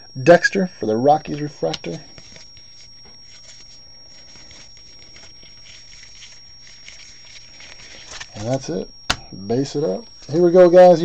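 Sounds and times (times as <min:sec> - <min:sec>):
thin high whine: 0:00.0 - 0:11.0
cards rustling: 0:01.3 - 0:09.3.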